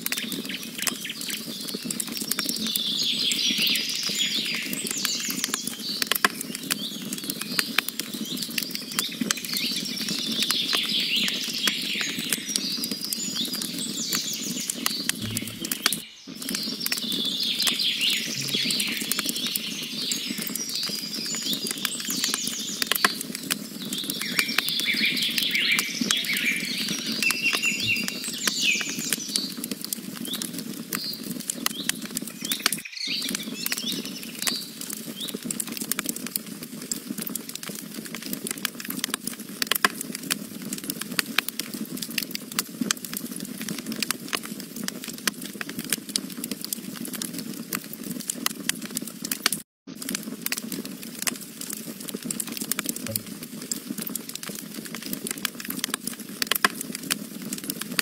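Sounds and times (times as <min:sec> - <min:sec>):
campfire crackling and popping: 0:00.0 - 0:58.0
birds chirping and trilling: 0:13.3 - 0:21.5, 0:24.0 - 0:29.3.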